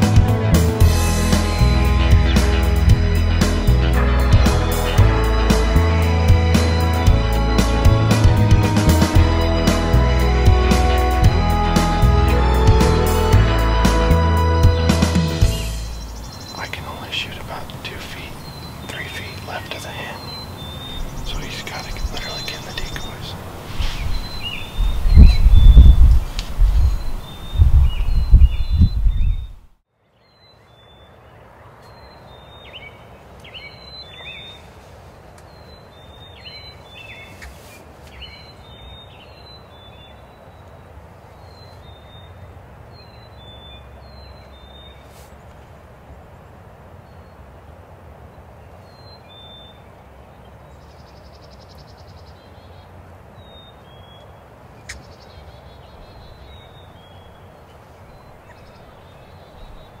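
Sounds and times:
low outdoor rumble: 0:00.0 - 0:20.1
songbird chirping: 0:00.0 - 0:47.6, 0:48.2 - 1:00.0.

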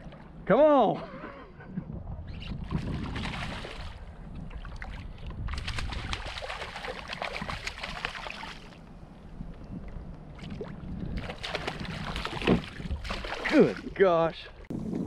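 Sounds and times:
fish thrashing and splashing: 0:04.6 - 0:08.8, 0:10.5 - 0:13.8.

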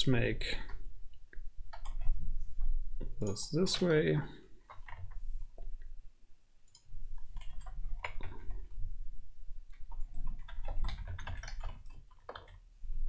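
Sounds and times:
keyboard typing: 0:00.6 - 0:02.2, 0:04.6 - 0:05.9, 0:06.6 - 0:08.9, 0:09.6 - 0:12.7.

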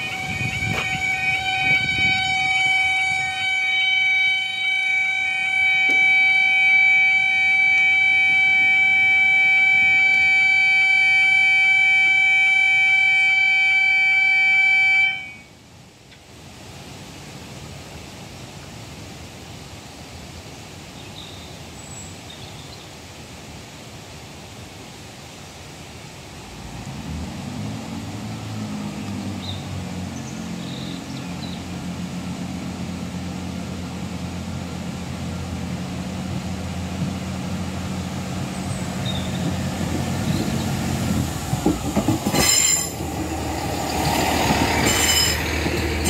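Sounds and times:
level crossing warning alarm: 0:00.0 - 0:15.5, 0:42.2 - 0:43.0, 0:44.5 - 0:46.0.

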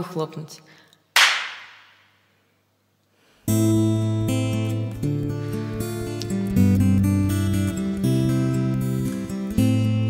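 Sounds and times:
acoustic guitar strummed chords: 0:03.5 - 0:10.0.

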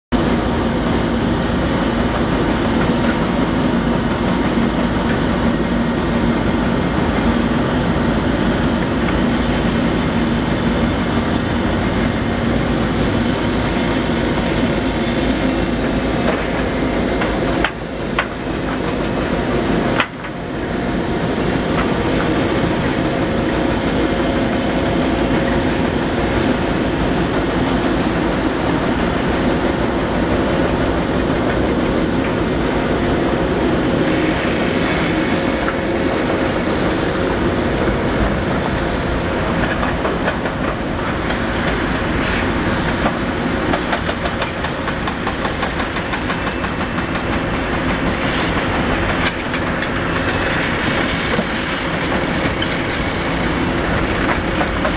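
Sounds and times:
excavator diesel engine: 0:00.2 - 0:54.9.

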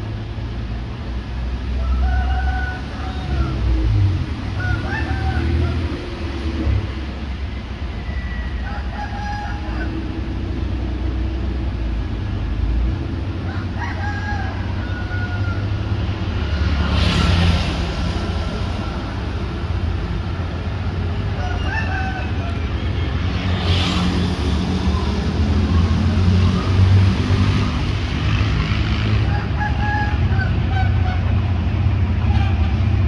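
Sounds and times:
locomotive rumble: 0:00.0 - 0:33.0
road traffic: 0:00.0 - 0:33.0
rooster crowing: 0:01.8 - 0:03.6, 0:04.6 - 0:05.9, 0:08.3 - 0:10.0, 0:13.4 - 0:15.8, 0:21.4 - 0:22.6, 0:29.3 - 0:30.6.

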